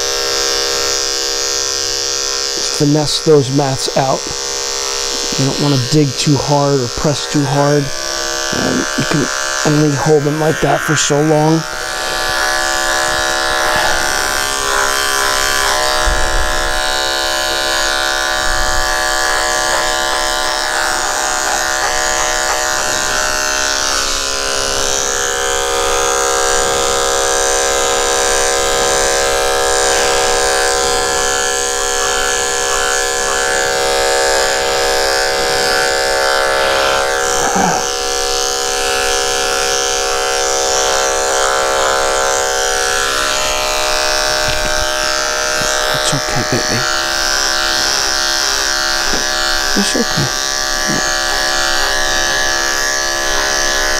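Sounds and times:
electric clippers humming: 0:00.0 - 0:53.9.

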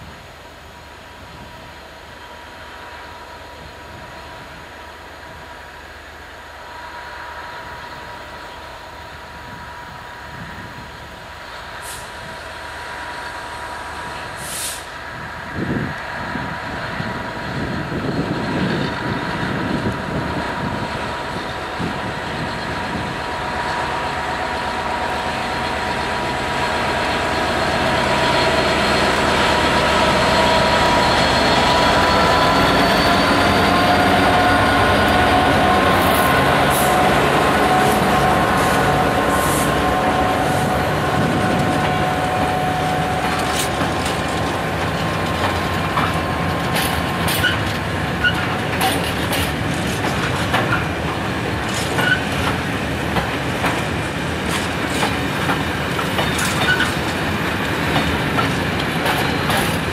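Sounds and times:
diesel locomotive engine under load: 0:00.0 - 0:59.9
wheels clattering over rail joints: 0:43.3 - 0:59.9.

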